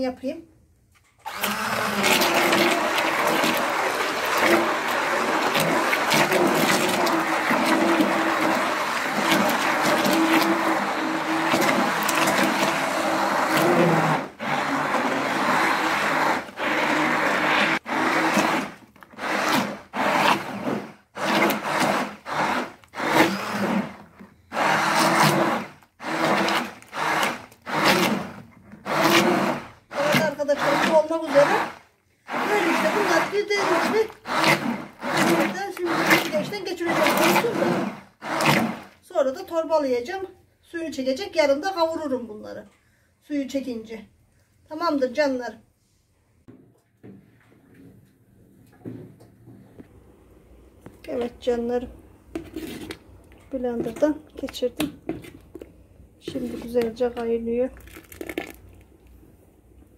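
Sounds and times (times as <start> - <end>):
immersion blender running: 1.3 - 39.0.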